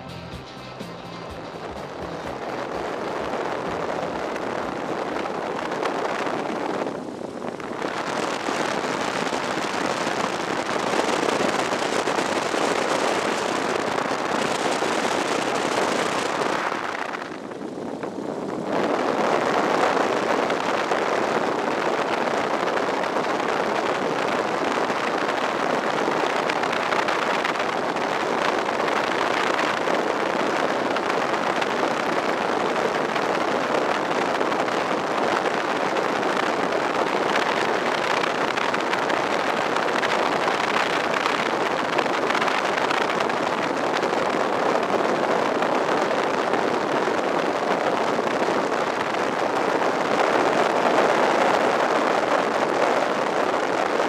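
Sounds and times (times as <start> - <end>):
propeller plane engine running: 0.0 - 20.9.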